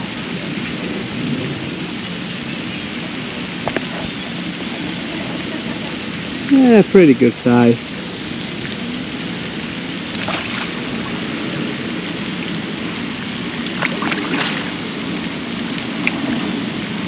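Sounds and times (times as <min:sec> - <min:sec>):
steady background hiss: 0:00.0 - 0:17.0
fish splashing at surface: 0:10.1 - 0:10.9, 0:13.7 - 0:14.9.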